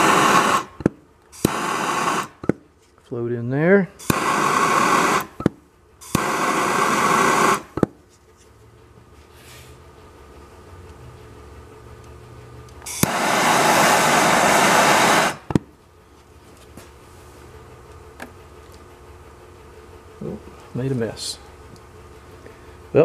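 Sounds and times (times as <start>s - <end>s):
gas torch flame hissing: 0.0s - 2.5s, 4.0s - 5.4s, 6.0s - 7.9s, 12.8s - 15.7s
torch clicking: 0.0s - 2.6s, 4.0s - 7.9s, 12.0s - 15.7s.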